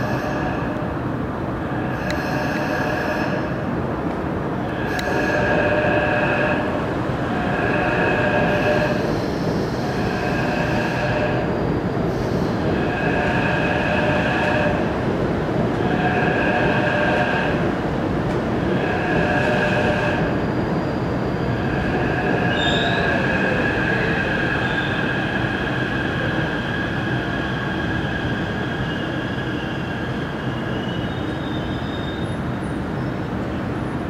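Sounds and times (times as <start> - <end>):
train wheels rumbling on rail: 0.0 - 34.0
wheel squeal: 22.5 - 23.2, 30.4 - 32.4.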